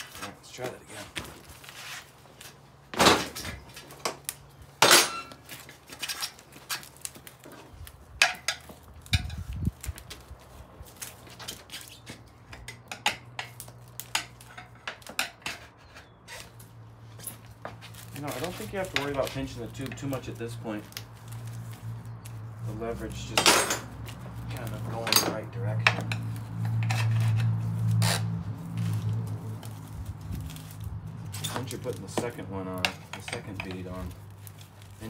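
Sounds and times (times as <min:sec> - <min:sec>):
tire irons clanking on wheel rim: 0:04.8 - 0:10.2, 0:22.2 - 0:34.2.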